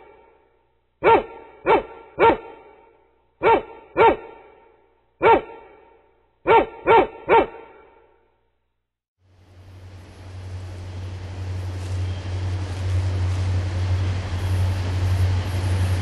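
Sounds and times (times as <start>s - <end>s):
dog barking: 1.0s - 8.1s.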